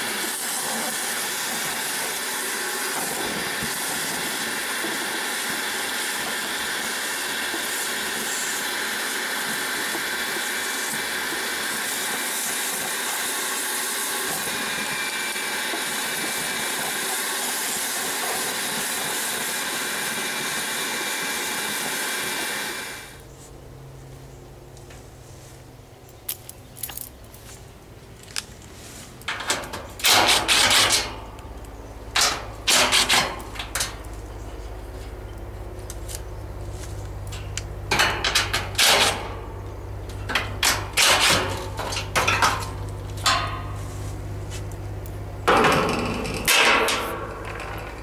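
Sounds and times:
steady low hum: 0:23.0 - 0:48.0.

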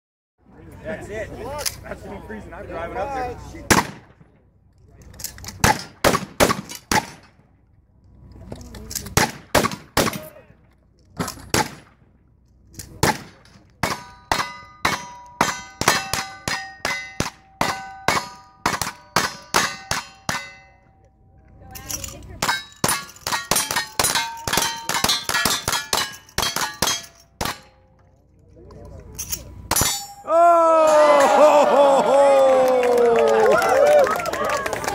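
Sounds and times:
steel plate ringing: 0:13.9 - 0:21.0, 0:22.4 - 0:27.9, 0:29.7 - 0:30.3.

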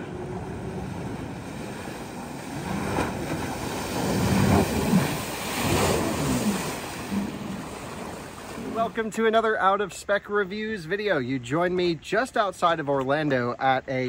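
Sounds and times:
wind on microphone: 0:00.0 - 0:08.9
jet ski rushing jet wash: 0:00.0 - 0:09.2.

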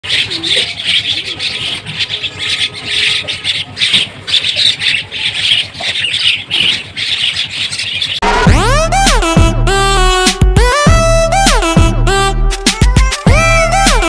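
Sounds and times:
flock of small birds chattering: 0:00.0 - 0:08.2
loud music with sliding tones: 0:08.2 - 0:14.0.

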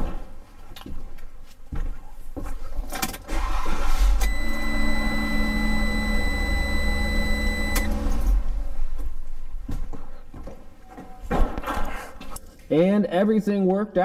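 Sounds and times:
car engine starting and running: 0:03.2 - 0:09.2
high-pitched electronic beep: 0:04.2 - 0:08.0.

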